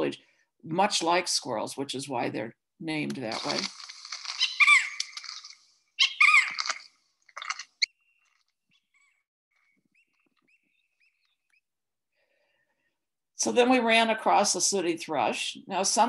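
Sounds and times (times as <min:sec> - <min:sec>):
harsh high bird calls: 0:04.2 - 0:06.9.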